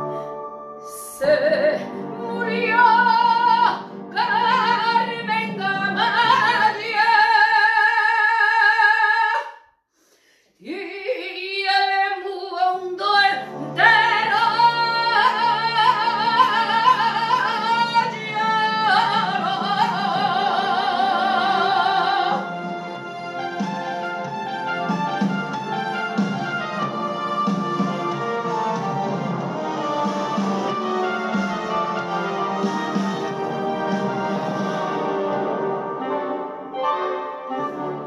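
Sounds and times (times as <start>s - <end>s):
recorded musical accompaniment: 0.0s - 9.4s, 10.0s - 38.0s
woman singing with vibrato: 0.9s - 9.6s, 10.6s - 22.6s.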